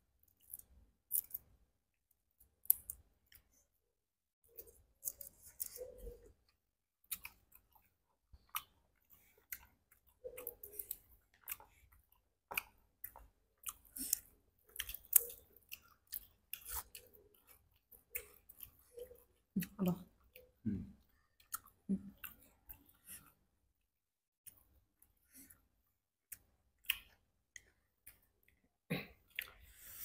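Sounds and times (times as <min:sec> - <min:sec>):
chewing and lip smacking: 0:04.5 - 0:23.4, 0:26.3 - 0:28.6.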